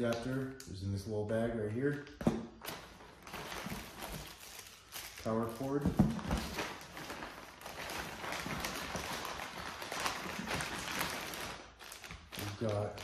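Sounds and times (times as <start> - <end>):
plastic bag rustling and crinkling: 2.6 - 13.0.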